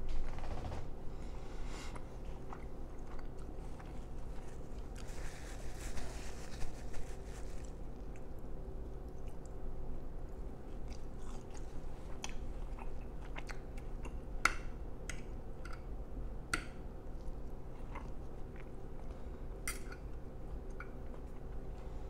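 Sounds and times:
person chewing steak: 0:01.9 - 0:05.1, 0:10.6 - 0:14.4, 0:17.2 - 0:22.0.

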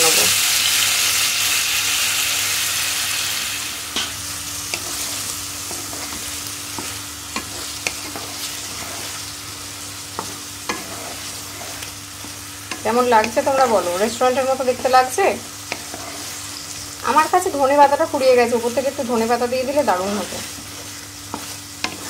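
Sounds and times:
food sizzling in a pan: 0:00.0 - 0:22.0
spatula knocking and scraping pan: 0:10.1 - 0:16.4, 0:20.6 - 0:22.0.

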